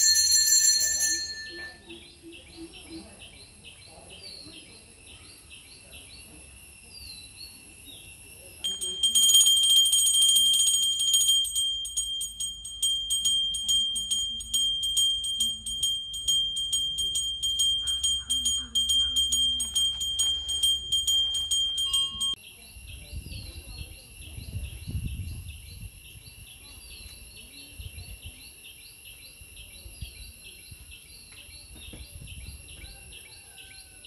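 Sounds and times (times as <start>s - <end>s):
brass hand bell ringing: 0.0s - 1.9s, 8.6s - 22.4s
faint outdoor background: 0.0s - 34.0s.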